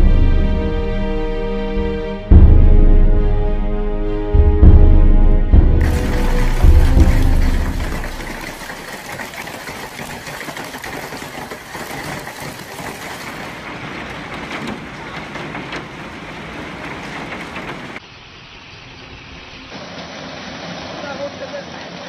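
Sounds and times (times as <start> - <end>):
hailstones clattering on wooden deck: 5.8 - 18.0.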